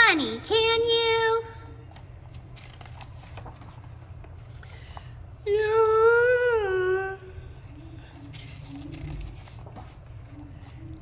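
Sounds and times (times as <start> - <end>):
paper page rustling: 1.9 - 5.0, 7.6 - 11.0.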